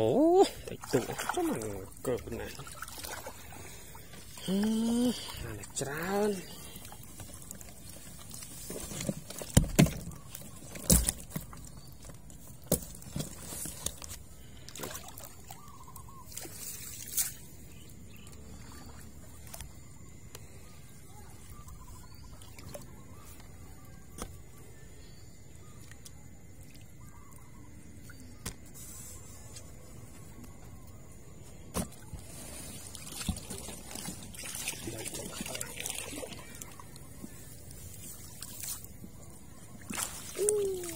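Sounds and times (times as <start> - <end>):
faint outdoor background: 0.0 - 40.9.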